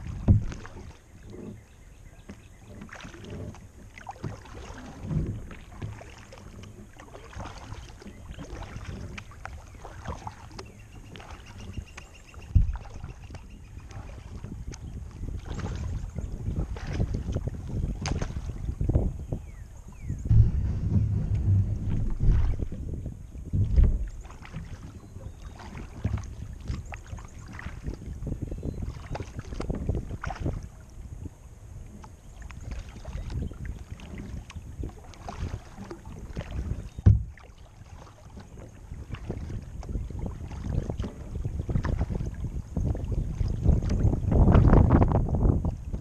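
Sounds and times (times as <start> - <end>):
kayak knocks: 0.0 - 30.7, 31.9 - 46.0
paddle splashes and drips: 0.0 - 46.0
low rumble: 18.6 - 25.1.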